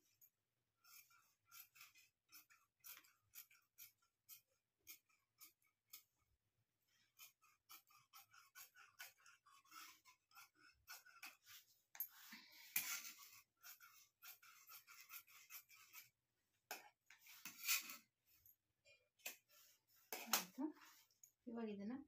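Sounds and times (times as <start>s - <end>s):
scissors snipping fabric: 20.1s - 20.7s.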